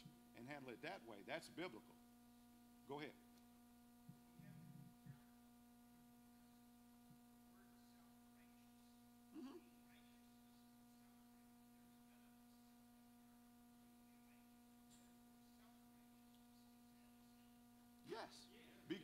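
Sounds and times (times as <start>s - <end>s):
electrical mains hum: 0.0s - 19.0s
faint voice speaking: 7.5s - 12.9s.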